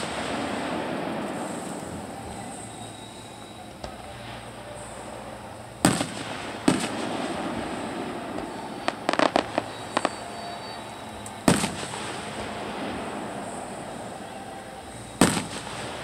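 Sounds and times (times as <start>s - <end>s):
firework booms: 0.0s - 2.6s, 5.8s - 10.4s, 11.4s - 14.0s, 15.2s - 16.0s
small sharp firework pops: 3.8s - 4.4s, 5.8s - 7.2s, 8.3s - 10.2s, 11.2s - 12.5s, 15.2s - 16.0s.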